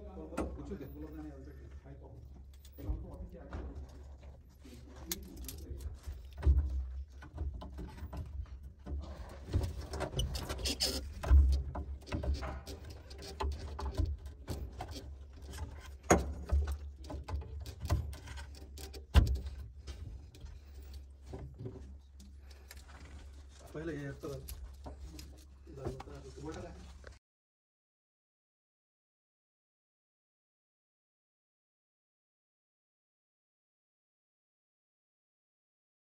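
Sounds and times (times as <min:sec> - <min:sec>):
plastic connectors rustling and clicking: 0:03.6 - 0:27.2.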